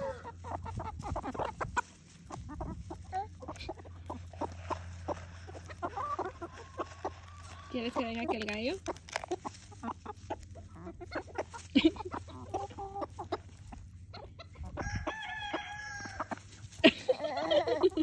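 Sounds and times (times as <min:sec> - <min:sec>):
chickens clucking: 0:00.0 - 0:18.0
rooster crowing: 0:14.8 - 0:16.4.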